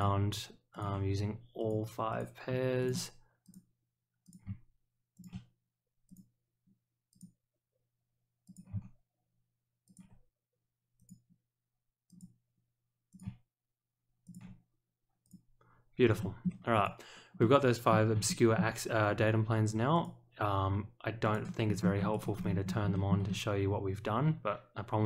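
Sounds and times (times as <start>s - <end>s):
computer mouse clicking: 1.6s - 4.6s, 5.2s - 5.5s, 6.1s - 6.3s, 7.1s - 7.4s, 8.5s - 9.0s, 9.9s - 10.2s, 11.0s - 11.3s, 12.1s - 12.4s, 13.1s - 13.4s, 14.3s - 14.6s, 21.2s - 23.3s.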